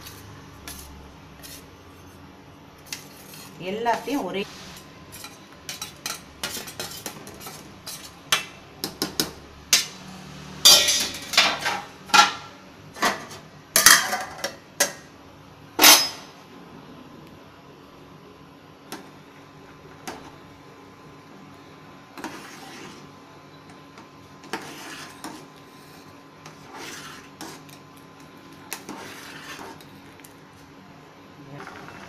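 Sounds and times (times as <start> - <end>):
metal pot and lid clattering: 10.7 - 12.5.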